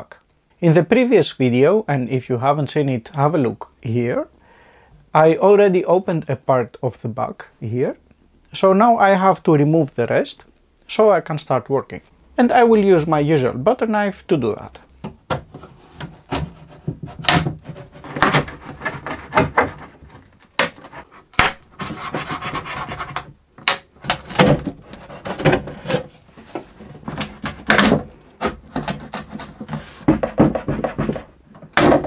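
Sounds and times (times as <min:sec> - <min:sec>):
glue joint cracking: 0:17.1 - 0:21.6, 0:23.6 - 0:26.0.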